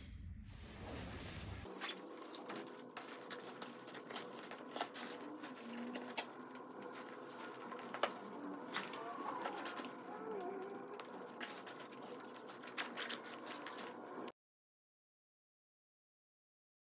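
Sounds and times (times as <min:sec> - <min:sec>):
nylon fabric rustling: 0:00.7 - 0:10.1.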